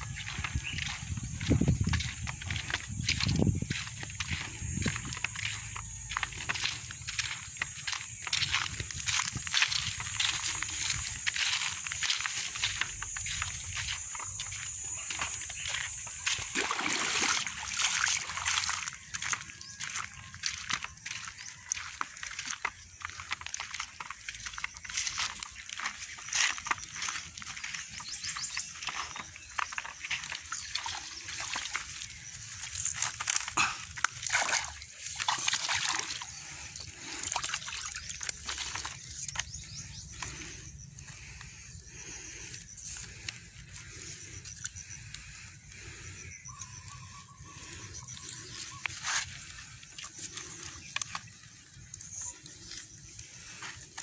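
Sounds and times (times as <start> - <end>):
splashing in muddy water: 0.0 - 52.3
rustling and clattering in reeds: 18.4 - 41.4.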